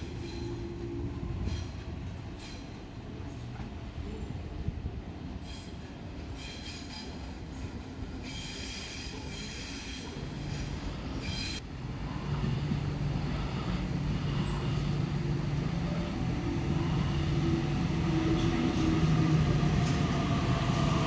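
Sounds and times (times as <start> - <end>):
train wheels squealing on rails: 0.0 - 3.4, 5.3 - 11.6, 14.3 - 15.0
train motors humming: 9.2 - 21.0.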